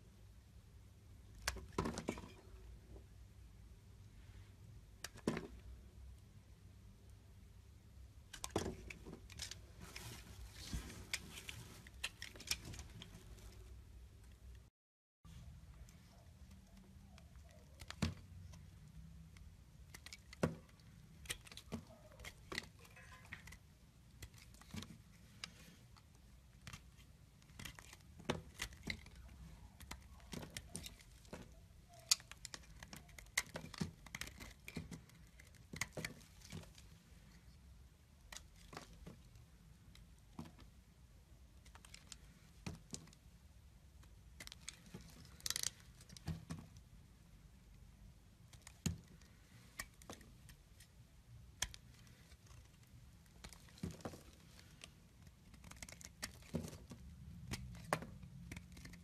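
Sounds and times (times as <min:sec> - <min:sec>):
knife carving soap: 0:15.7 - 0:39.4, 0:48.4 - 0:59.0.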